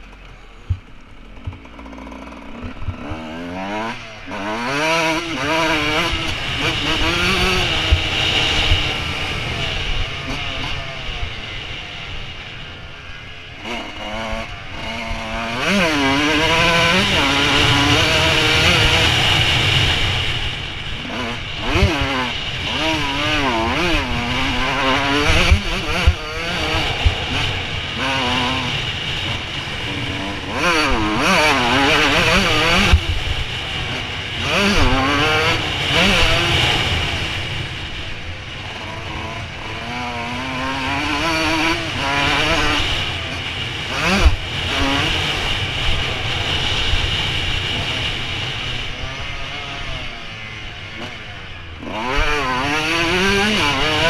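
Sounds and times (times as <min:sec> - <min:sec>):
motocross engine revving: 0:00.0 - 0:54.0
wind rushing: 0:22.8 - 0:30.7.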